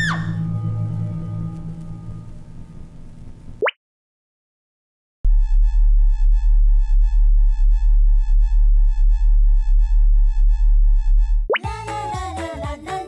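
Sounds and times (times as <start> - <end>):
deep electronic hum: 0.0 - 3.6, 5.2 - 11.6
music: 0.0 - 3.6, 11.6 - 13.0.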